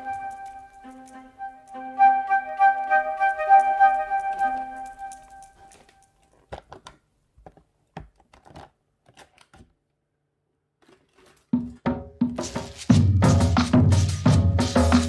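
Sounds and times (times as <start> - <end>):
music with drum beat: 11.6 - 15.0.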